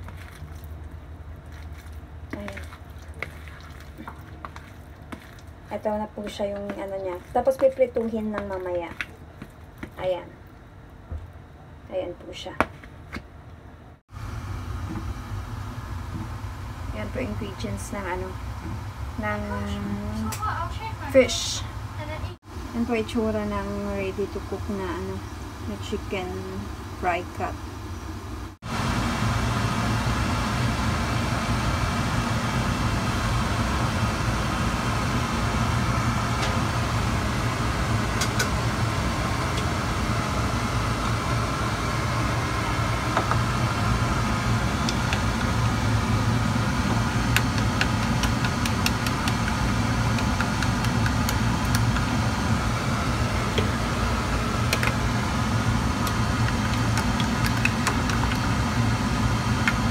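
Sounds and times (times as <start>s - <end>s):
gas stove rushing hum: 13.2s - 59.9s.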